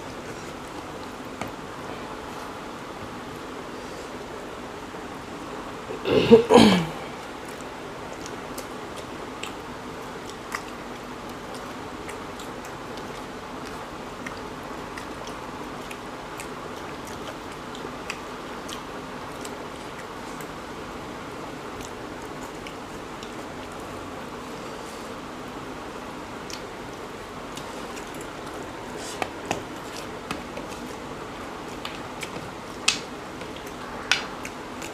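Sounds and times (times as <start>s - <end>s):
steady background hiss: 0.0s - 34.9s
chewing: 7.1s - 25.2s, 26.1s - 34.9s.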